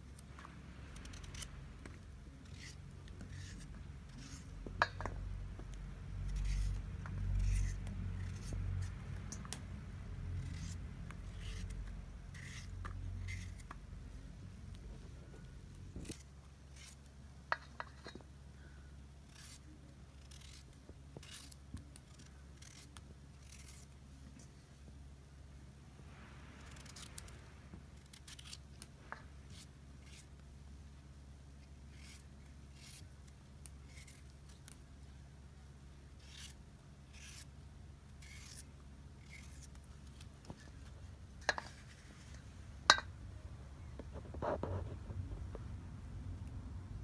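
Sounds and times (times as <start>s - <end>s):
low hum: 0.0s - 47.0s
knife slicing raw potatoes: 0.1s - 5.4s, 6.1s - 13.8s, 15.8s - 18.1s, 19.2s - 24.0s, 28.0s - 30.4s, 31.8s - 34.8s, 36.2s - 37.5s, 38.1s - 40.8s.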